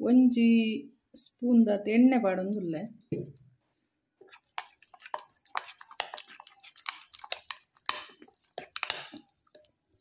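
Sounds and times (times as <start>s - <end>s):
metal spoon stirring thick paste: 4.2s - 10.0s.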